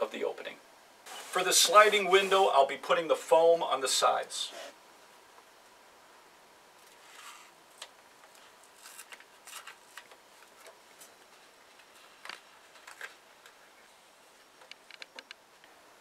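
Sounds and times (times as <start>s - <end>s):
foam weatherstrip rustling: 1.1s - 4.8s, 6.8s - 13.6s.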